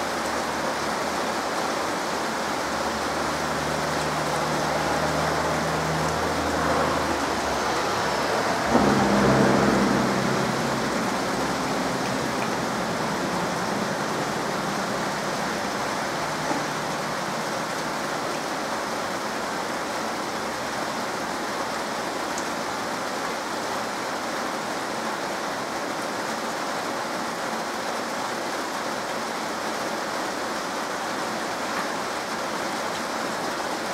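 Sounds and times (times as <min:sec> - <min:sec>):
heavy rain on trees: 0:00.0 - 0:33.9
low rumble: 0:06.1 - 0:17.0.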